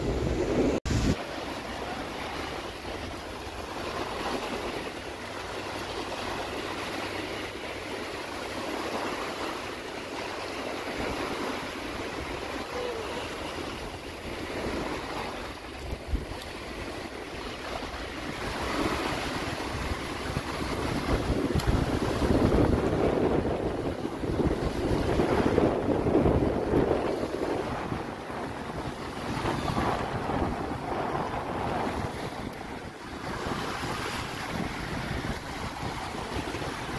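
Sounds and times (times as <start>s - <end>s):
small waves breaking on beach: 0.0s - 36.9s
wind rumbling on microphone: 0.0s - 36.9s.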